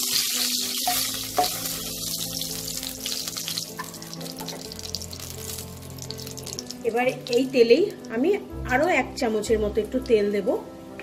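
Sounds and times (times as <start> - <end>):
oil sizzling in pan: 0.0 - 8.3.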